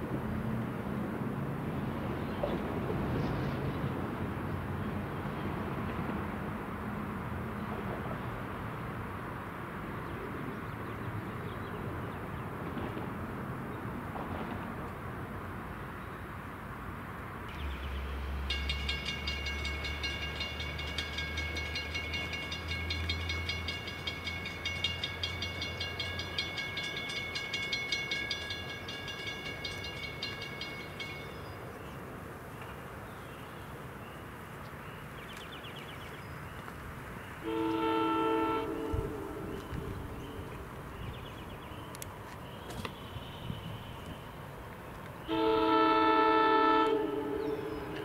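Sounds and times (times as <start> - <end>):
crossing bell ringing rapidly: 18.3 - 31.5
train horn: 37.4 - 40.1, 45.2 - 48.0.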